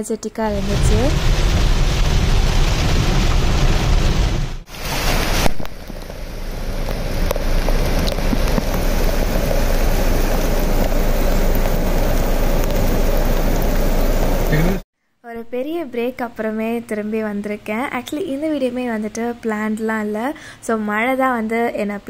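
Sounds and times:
floodwater rushing across road: 0.5 - 14.8
heavy rain: 0.5 - 14.8.

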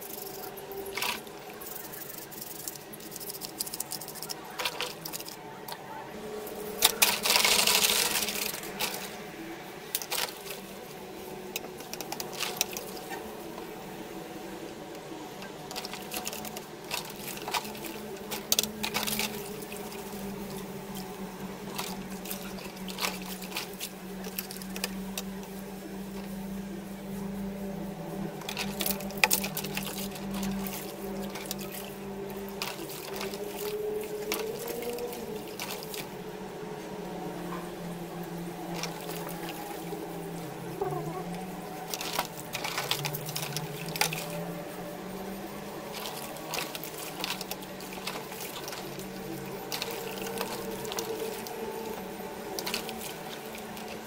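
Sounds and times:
water sloshing in a bucket: 0.0 - 54.0.

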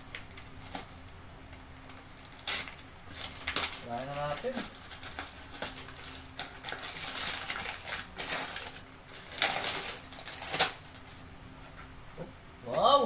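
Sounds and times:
wrapping paper tearing and crumpling: 1.8 - 11.1.

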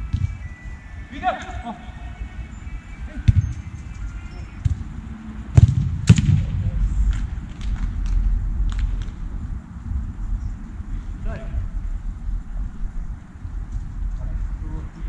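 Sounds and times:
wind rumbling on microphone: 1.9 - 15.0
football being kicked: 5.5 - 6.5.

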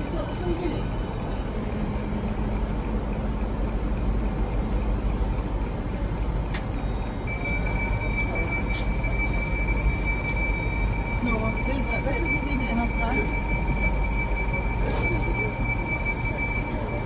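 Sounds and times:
vehicle rumbling: 0.0 - 17.0
high-pitched tone: 7.2 - 17.0.

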